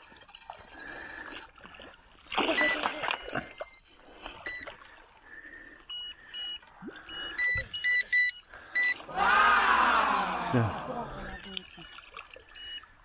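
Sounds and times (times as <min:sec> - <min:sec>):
faint water splashing: 0:00.0 - 0:13.0
electronic alarm beeps: 0:02.5 - 0:04.9, 0:05.8 - 0:09.1, 0:11.1 - 0:13.0.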